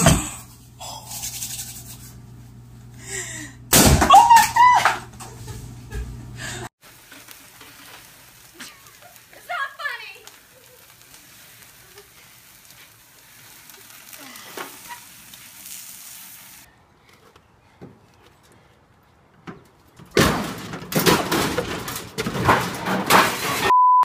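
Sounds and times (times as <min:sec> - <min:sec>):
metal grill crashing: 0:03.7 - 0:05.4, 0:20.1 - 0:23.7
flames crackling: 0:04.2 - 0:16.7.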